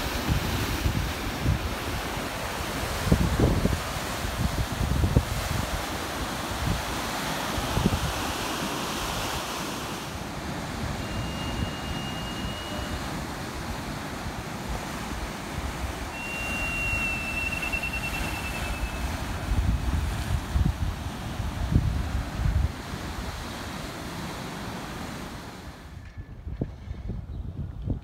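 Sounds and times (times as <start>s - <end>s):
heavy surf washing over rocks: 0.0s - 26.0s
wind buffeting microphone: 0.0s - 28.0s
faint high whistle: 10.9s - 13.2s, 16.1s - 19.1s.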